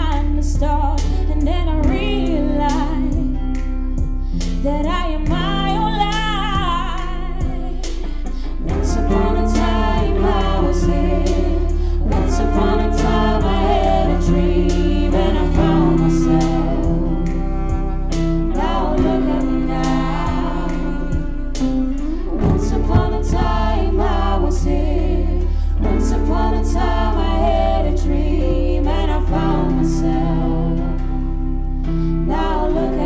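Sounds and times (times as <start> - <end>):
deep bass: 0.0 - 33.0
light beat: 1.8 - 24.8
pitch-bending melodic line: 8.6 - 33.0.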